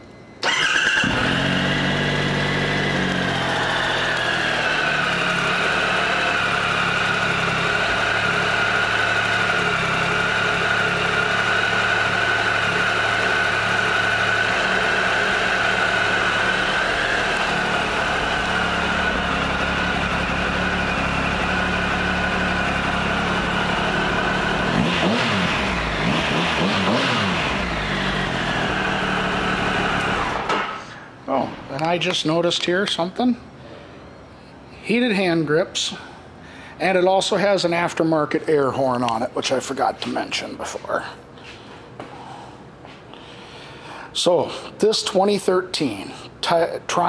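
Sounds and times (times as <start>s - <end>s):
motorcycle engine idling and revving: 0.4s - 30.8s.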